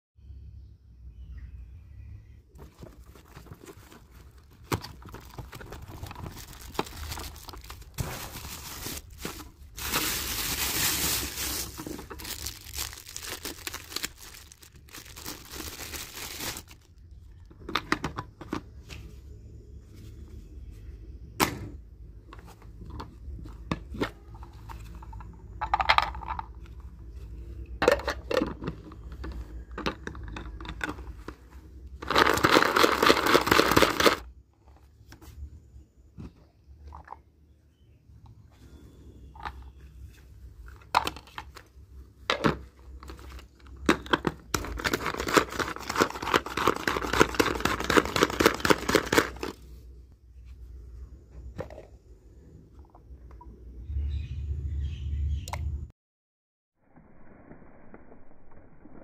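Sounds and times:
packaging crumpling: 0:02.7 - 0:17.1, 0:32.0 - 0:34.2, 0:44.6 - 0:49.6.

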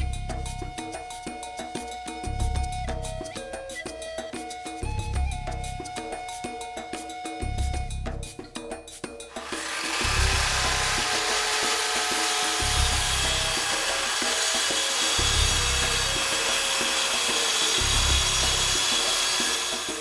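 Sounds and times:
background music with bass: 0:00.0 - 0:11.6, 0:12.3 - 0:19.3
circular saw cutting plywood: 0:09.4 - 0:20.0.

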